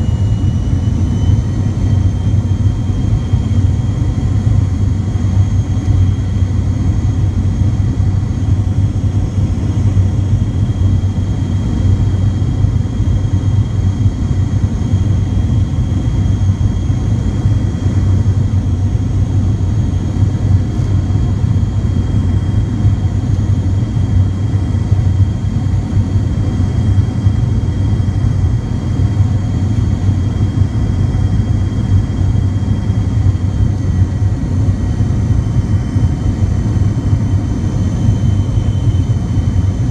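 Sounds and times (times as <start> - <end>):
faint high whines: 0.0 - 4.3
airliner cabin rumble: 0.0 - 39.9.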